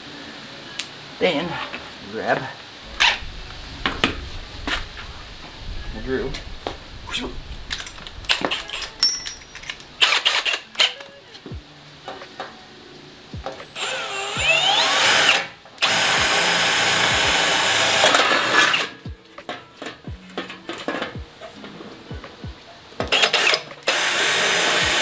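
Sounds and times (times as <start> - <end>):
drill boring into sheet metal: 13.8 - 18.9, 23.1 - 25.0.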